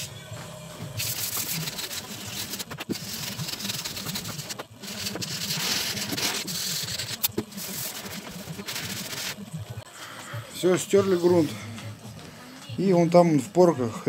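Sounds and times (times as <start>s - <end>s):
sandpaper rasping on metal panel: 1.0s - 9.4s.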